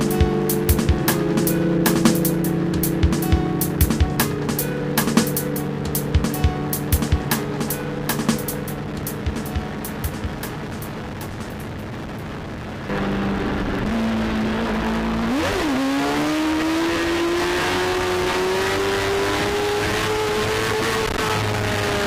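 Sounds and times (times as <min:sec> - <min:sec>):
motorcycle engine accelerating: 0:00.0 - 0:08.4, 0:12.9 - 0:22.0.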